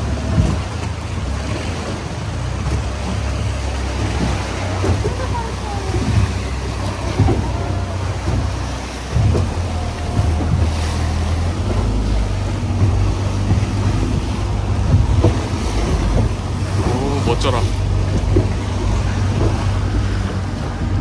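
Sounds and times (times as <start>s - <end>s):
boat engine droning: 0.0s - 21.0s
water splashing along hull: 0.0s - 21.0s
wind buffeting microphone: 0.0s - 21.0s.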